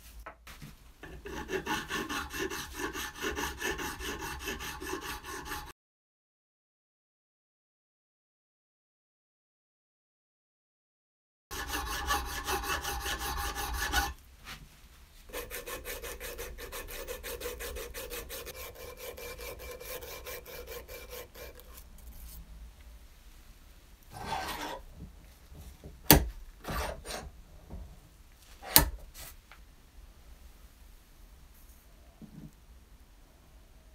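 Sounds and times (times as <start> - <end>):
file rasping on brass: 1.0 - 5.7, 11.5 - 14.2, 15.3 - 22.4, 24.1 - 24.8, 26.6 - 27.3.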